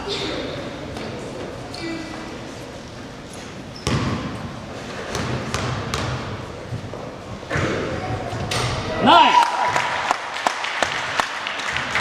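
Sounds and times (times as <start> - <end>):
basketball bouncing on wooden floor: 3.8 - 4.3, 5.1 - 6.4.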